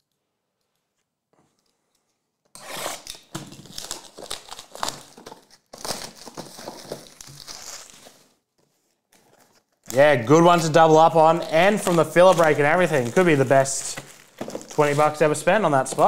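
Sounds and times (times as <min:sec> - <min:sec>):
plastic shrink wrap crackling: 0:03.2 - 0:16.0.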